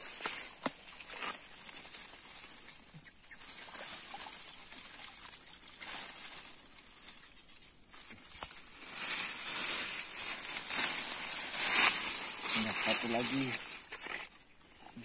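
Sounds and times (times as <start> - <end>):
faint water sloshing: 0.9 - 7.2.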